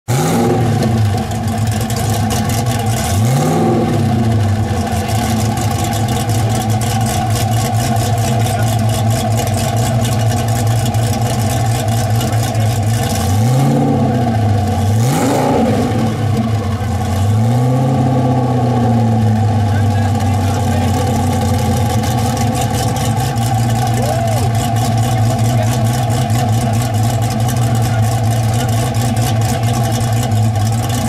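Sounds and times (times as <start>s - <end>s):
car engine idling: 0.1s - 31.0s
engine revving: 0.1s - 31.0s.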